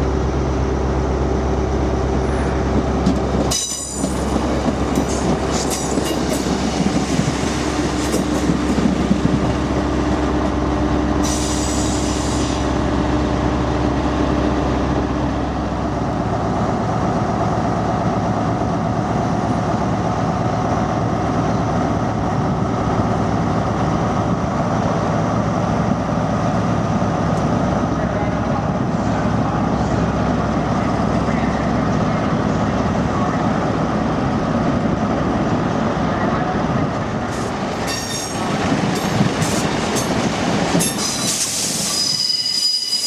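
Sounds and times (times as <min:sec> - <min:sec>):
diesel railcar engine running: 0:00.0 - 0:43.0
wheels squealing on rails: 0:37.8 - 0:38.4, 0:39.4 - 0:43.0.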